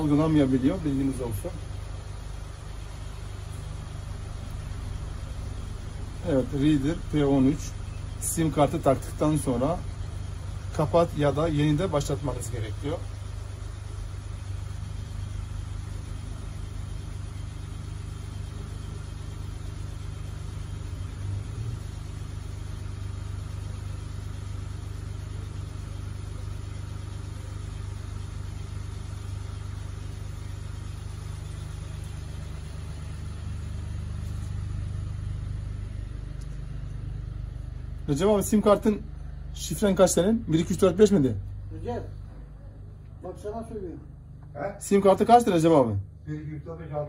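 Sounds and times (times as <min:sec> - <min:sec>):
low mechanical rumble: 0:00.0 - 0:47.0.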